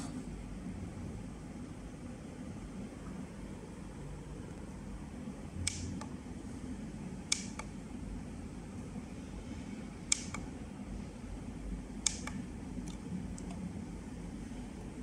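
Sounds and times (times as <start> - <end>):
steady low hum: 0.0 - 15.0
sharp double clicks: 12.0 - 13.6.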